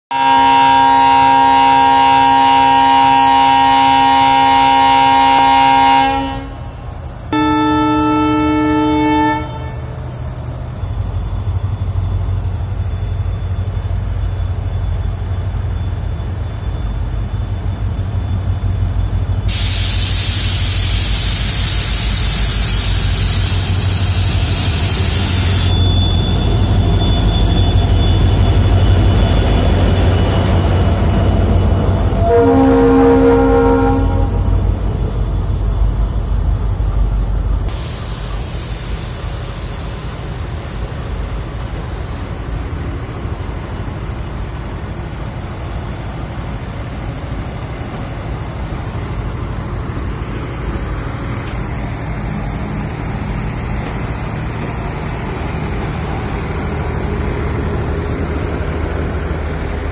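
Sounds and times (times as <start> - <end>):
locomotive multi-tone horn: 0.1 - 6.7, 7.3 - 10.1, 32.1 - 34.7
locomotive engine rumble: 0.2 - 59.9
loud hiss: 19.4 - 25.9, 37.7 - 59.6.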